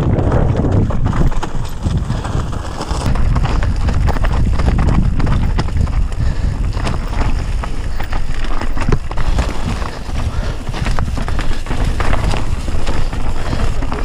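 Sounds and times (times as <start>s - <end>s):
bike rattling: 0.0s - 14.0s
tyres crunching over stones: 0.0s - 14.0s
wind buffeting microphone: 0.0s - 14.0s.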